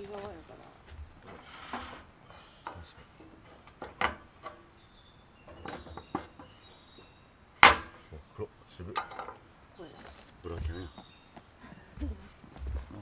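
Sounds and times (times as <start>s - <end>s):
camp cooking gear clattering: 1.0s - 11.1s.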